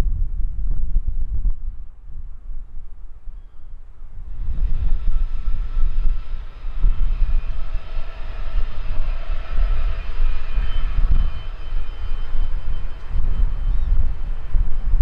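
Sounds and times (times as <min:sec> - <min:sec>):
wind buffeting microphone: 0:00.0 - 0:15.0
jet engines whining: 0:04.3 - 0:15.0.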